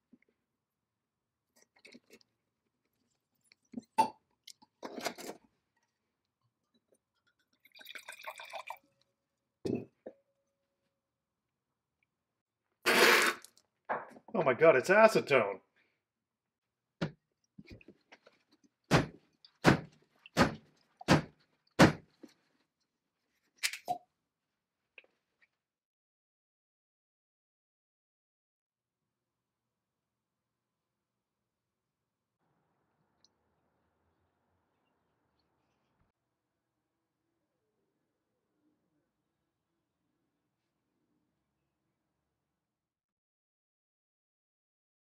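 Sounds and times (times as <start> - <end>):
wine glugging into glass: 7.6 - 8.8
cork popping from bottle: 12.9 - 13.5
cork squeak and pop: 23.7 - 24.0.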